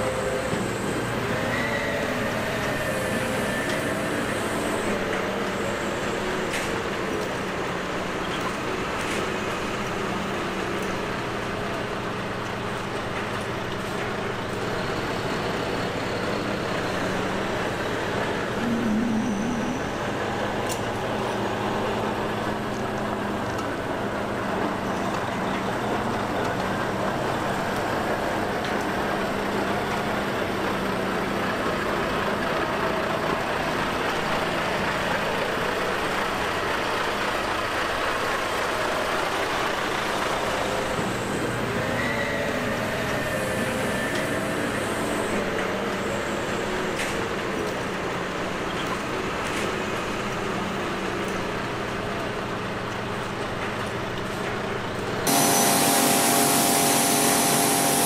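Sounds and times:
diesel truck engine driving past: 14.5 - 41.9.

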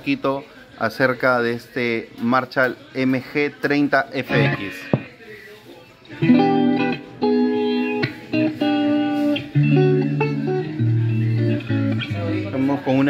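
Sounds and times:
electric guitar chords: 4.3 - 5.1, 6.1 - 13.0.

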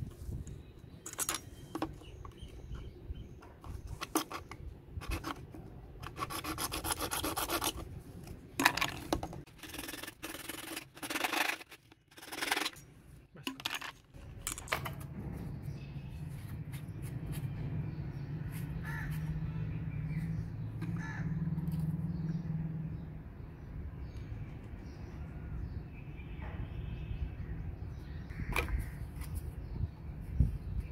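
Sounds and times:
hacksaw sawing plastic pipe: 6.0 - 7.9, 9.5 - 12.8.

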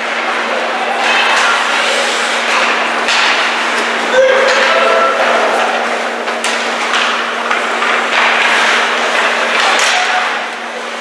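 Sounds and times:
ice rink crowd din: 0.0 - 11.0
steady low hum: 0.0 - 11.0
stick and puck hitting boards: 2.5 - 3.6, 4.4 - 10.4.

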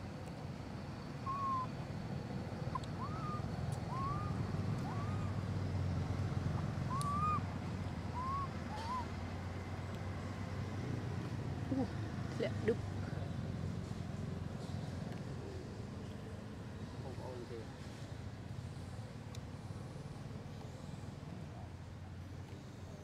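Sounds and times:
macaque coo calls: 1.2 - 1.8, 2.7 - 5.4, 6.9 - 9.2.

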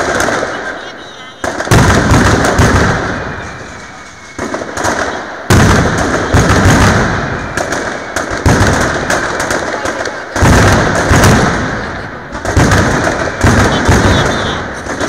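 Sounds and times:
firecrackers exploding: 0.0 - 15.0
heavy booms: 1.4 - 15.0.

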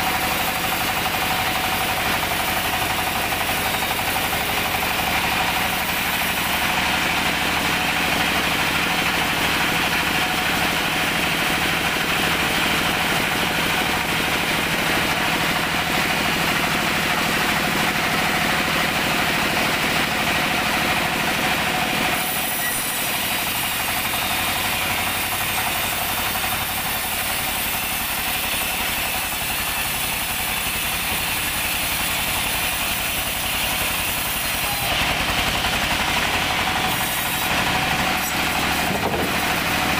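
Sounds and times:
sawmill machine drone: 0.0 - 39.9
saw blade ripping through log: 22.1 - 39.9.

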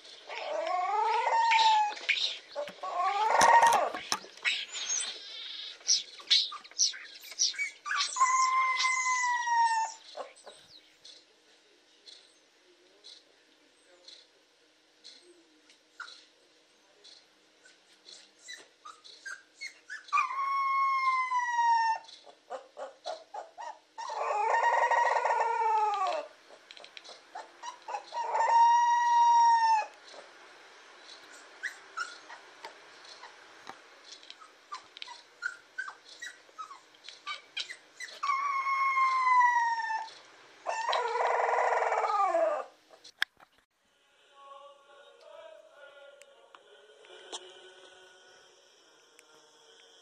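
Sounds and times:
puppy howling: 0.3 - 4.1, 7.6 - 10.3, 18.5 - 26.3, 27.3 - 30.3, 34.4 - 42.8
puppy squeaks: 0.3 - 5.2, 6.4 - 10.3, 17.7 - 26.2, 27.4 - 29.9, 31.3 - 32.4, 34.3 - 40.1, 40.7 - 43.0.

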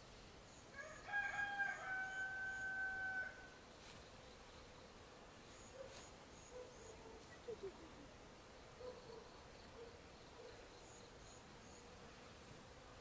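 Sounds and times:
rooster crowing: 0.7 - 3.5.

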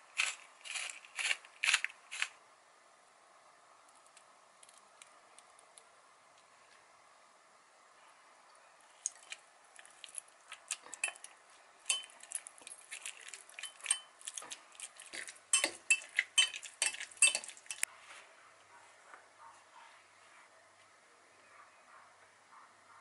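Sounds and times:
potato masher clinking on glass: 11.9 - 12.3, 13.6 - 14.4, 15.1 - 17.8.

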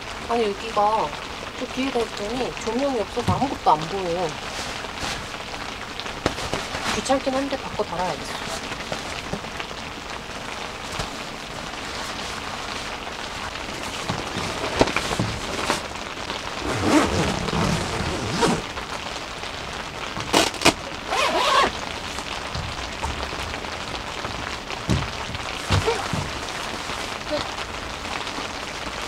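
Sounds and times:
rain falling on tent: 0.0 - 29.0
vinyl panel rustling: 3.2 - 9.7, 10.5 - 18.8, 20.0 - 27.6.

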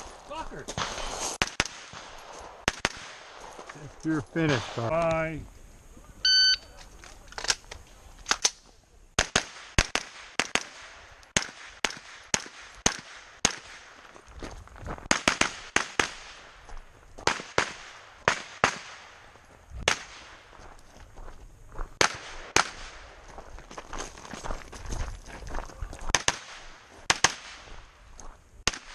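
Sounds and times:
carbine gunshots: 0.8 - 3.6, 9.2 - 14.0, 15.1 - 16.6, 17.3 - 19.3, 22.0 - 23.1, 26.1 - 27.7.

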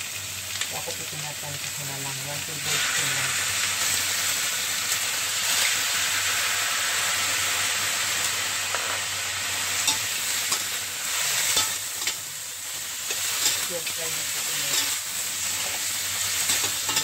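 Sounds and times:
meat and onions sizzling in wok: 0.0 - 17.0
metal spatula scraping wok: 9.7 - 12.2, 13.0 - 17.0.

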